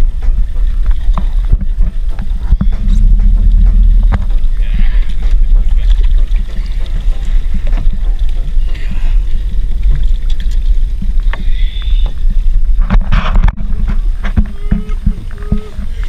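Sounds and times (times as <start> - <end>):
boat engine idling: 0.0 - 13.0
water splashing: 0.0 - 16.0.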